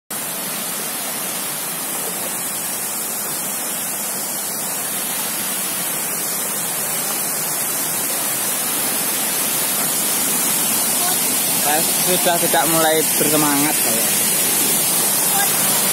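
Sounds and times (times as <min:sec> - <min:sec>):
waterfall rushing water: 0:00.1 - 0:15.9.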